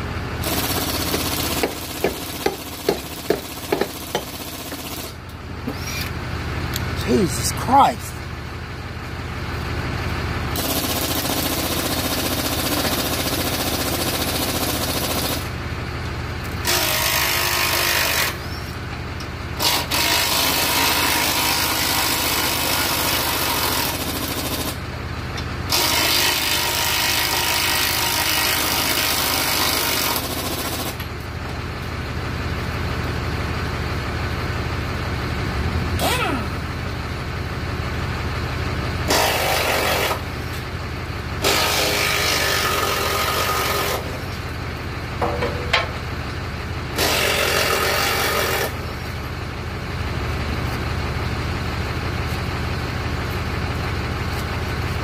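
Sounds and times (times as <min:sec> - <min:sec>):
diesel engine idling: 0:00.0 - 0:16.7, 0:18.4 - 0:19.6, 0:23.9 - 0:25.7, 0:30.2 - 0:39.1, 0:40.1 - 0:41.5, 0:42.2 - 0:48.0, 0:48.7 - 0:55.0
power tool rattling: 0:00.4 - 0:05.2.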